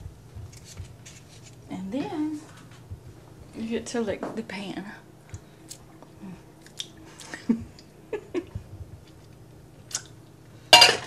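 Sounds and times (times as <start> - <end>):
mouth smacking sounds: 9.9 - 10.2.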